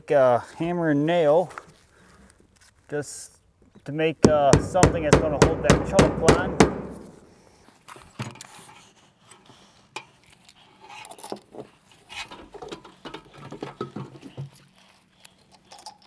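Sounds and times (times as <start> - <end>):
hand tools clicking and rattling: 11.0 - 14.7.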